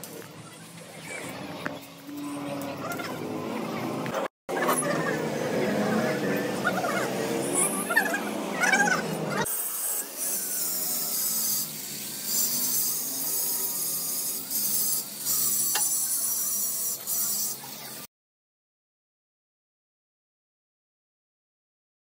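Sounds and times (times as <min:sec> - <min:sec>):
angle grinder grinding metal: 0:01.1 - 0:18.1.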